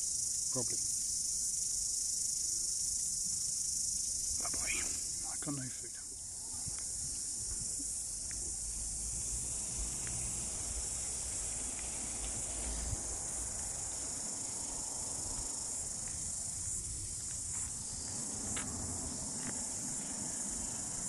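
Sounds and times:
insect chorus drone: 0:00.0 - 0:21.0.

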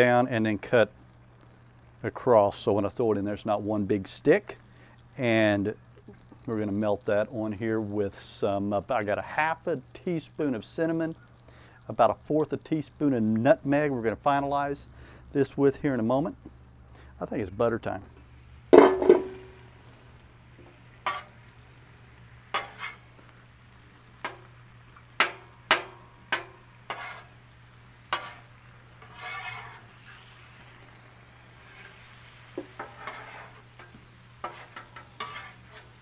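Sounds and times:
faint sizzle: 0:00.0 - 0:36.0
loud metal clank: 0:18.8 - 0:19.6
spatulas scraping a steel griddle: 0:20.9 - 0:21.4, 0:22.4 - 0:23.4, 0:25.2 - 0:30.9, 0:31.5 - 0:36.0.

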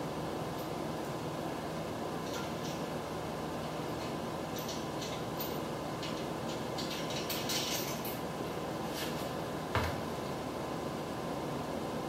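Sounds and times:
steady background hiss: 0:00.0 - 0:12.0
metal clinks and rattles: 0:02.3 - 0:02.8, 0:04.0 - 0:08.2.

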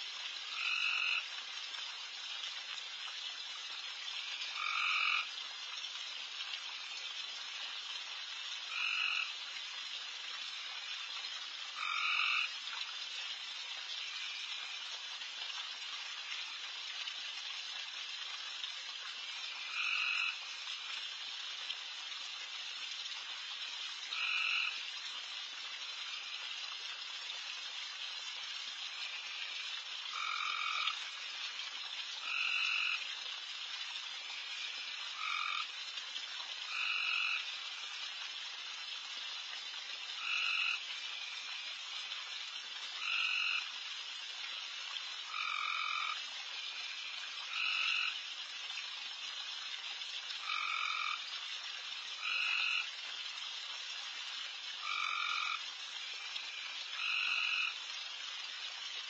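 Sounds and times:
frog chorus: 0:00.4 - 0:01.4, 0:04.2 - 0:05.4, 0:08.6 - 0:09.4, 0:11.7 - 0:12.6, 0:14.0 - 0:14.9, 0:19.2 - 0:20.9, 0:24.1 - 0:24.9, 0:28.9 - 0:31.3, 0:32.2 - 0:33.1, 0:34.3 - 0:35.8, 0:36.6 - 0:37.9, 0:40.2 - 0:41.8, 0:43.0 - 0:43.8, 0:45.3 - 0:48.2, 0:50.4 - 0:51.3, 0:52.2 - 0:52.9, 0:54.8 - 0:57.8
loud single frog call: 0:04.6 - 0:05.3, 0:11.8 - 0:12.5, 0:30.1 - 0:31.0.

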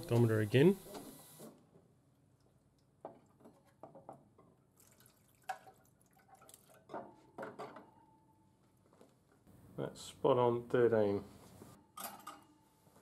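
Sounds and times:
faint clicks and drips: 0:02.3 - 0:03.8, 0:04.8 - 0:06.9.

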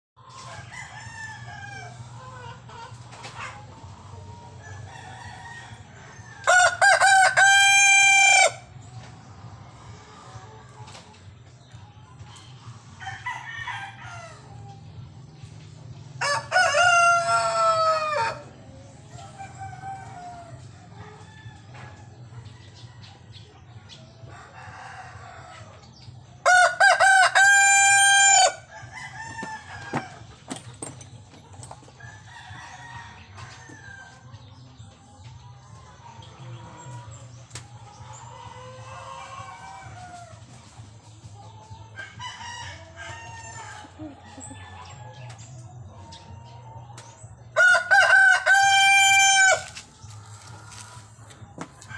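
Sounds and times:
chickens clucking: 0:00.2 - 0:51.9
rooster crowing: 0:04.7 - 0:08.6, 0:16.2 - 0:18.5, 0:26.4 - 0:30.2, 0:47.6 - 0:49.7.

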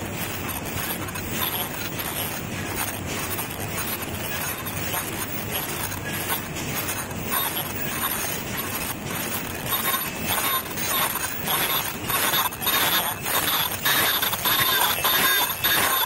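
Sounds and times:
machine mechanical din: 0:00.0 - 0:16.0.

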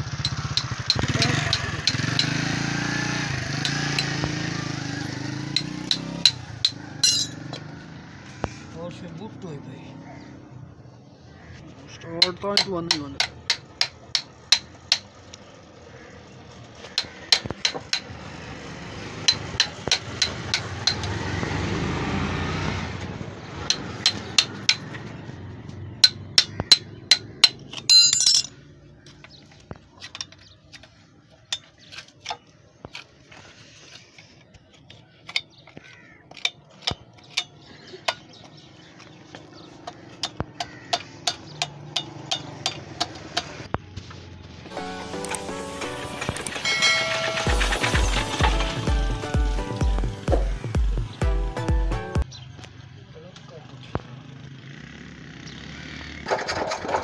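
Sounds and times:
metal tools tapping on engine: 0:00.0 - 0:02.6, 0:03.5 - 0:04.4, 0:05.5 - 0:07.7, 0:12.1 - 0:15.4, 0:16.8 - 0:18.2, 0:19.2 - 0:21.2, 0:23.6 - 0:25.2, 0:25.9 - 0:33.2, 0:34.0 - 0:43.7, 0:46.2 - 0:48.9
bright scraping clink: 0:07.0 - 0:07.4, 0:27.8 - 0:28.6, 0:46.5 - 0:47.8.

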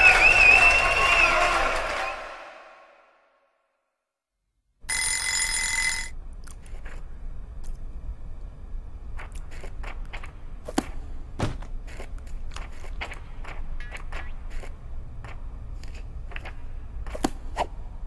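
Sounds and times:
bell ringing: 0:04.9 - 0:06.1.

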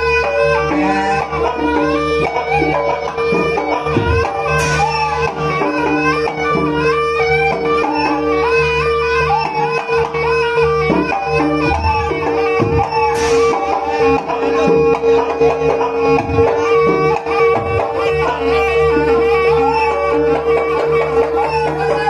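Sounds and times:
gamelan percussion: 0:00.0 - 0:22.0
held drone: 0:00.0 - 0:22.0
shawm melody: 0:00.0 - 0:22.0
drum strokes: 0:03.3 - 0:08.0, 0:10.9 - 0:18.4
cymbal crash: 0:04.5 - 0:05.2, 0:12.9 - 0:13.8.

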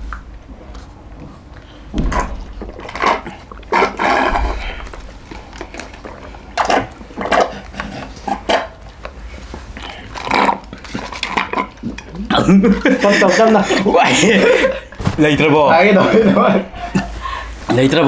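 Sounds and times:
people slurping through straws: 0:02.7 - 0:14.3.

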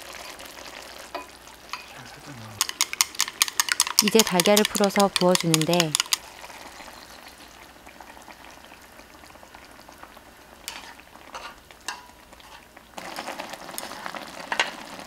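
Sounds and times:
food sizzling in frying pan: 0:00.0 - 0:15.0
chopsticks clicking against pan: 0:02.6 - 0:06.2.

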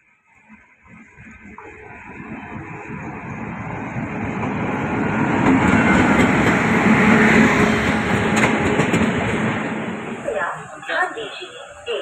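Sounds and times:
electric locomotive passing: 0:00.2 - 0:12.0
train coaches rolling by: 0:00.4 - 0:12.0.

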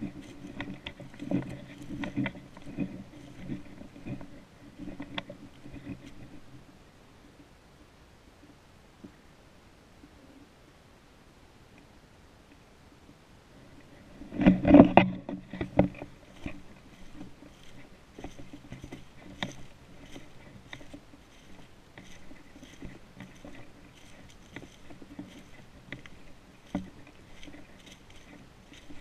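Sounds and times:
footsteps crunching dry leaves: 0:00.0 - 0:06.2, 0:15.4 - 0:29.0.

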